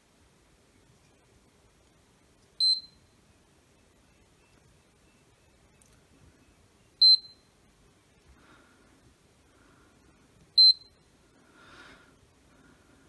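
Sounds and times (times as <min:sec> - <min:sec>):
multimeter beeps: 0:02.6 - 0:03.1, 0:07.0 - 0:07.5, 0:10.6 - 0:11.0.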